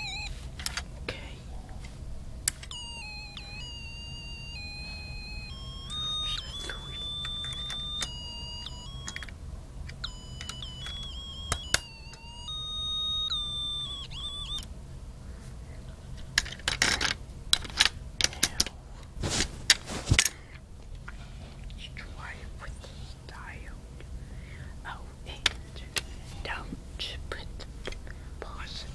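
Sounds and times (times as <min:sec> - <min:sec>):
electronic beeping tune: 0:00.0 - 0:00.3, 0:02.7 - 0:09.3, 0:10.0 - 0:14.6
plastic parts clicking and knocking: 0:16.3 - 0:18.7.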